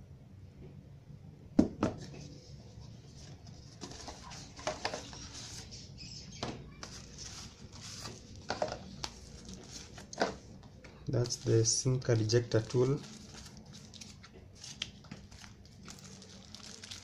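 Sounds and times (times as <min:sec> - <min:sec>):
cardboard scraping and rustling: 0:03.1 - 0:05.7, 0:06.8 - 0:10.4.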